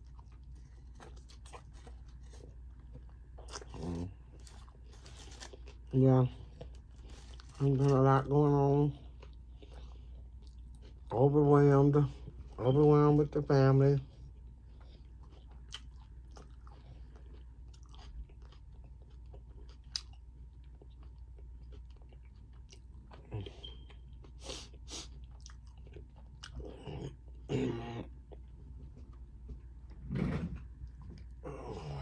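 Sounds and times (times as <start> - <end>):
food crunching: 0.0 - 11.4, 14.4 - 27.5
person chewing food: 0.0 - 11.4, 14.1 - 30.0.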